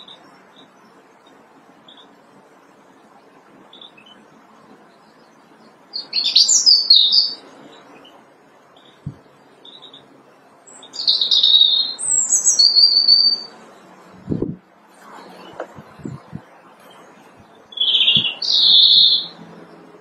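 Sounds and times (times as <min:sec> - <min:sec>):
robin singing: 0:00.0 - 0:02.2, 0:03.7 - 0:04.3, 0:04.9 - 0:13.5, 0:15.4 - 0:19.8
faint low background noise: 0:00.0 - 0:20.0.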